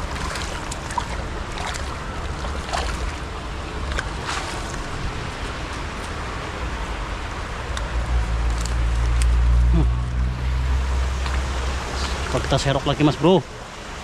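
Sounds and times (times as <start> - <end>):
net splashing in water: 0.0 - 4.9
river water over stones: 0.0 - 9.7, 10.3 - 14.0.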